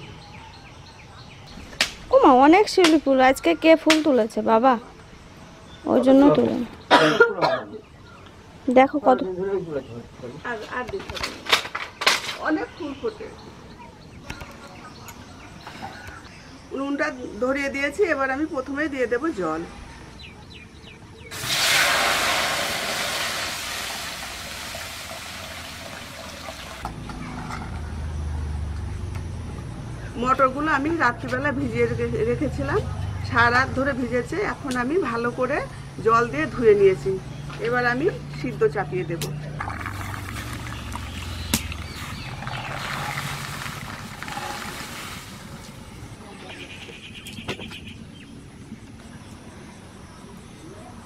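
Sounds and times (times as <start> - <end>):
water pouring into metal pot: 21.3 - 26.8, 39.6 - 45.5.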